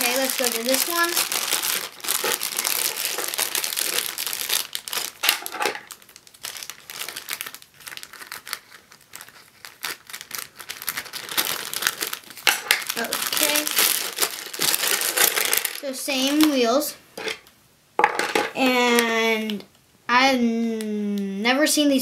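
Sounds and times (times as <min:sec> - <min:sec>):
plastic bag crinkling: 0:00.0 - 0:16.7.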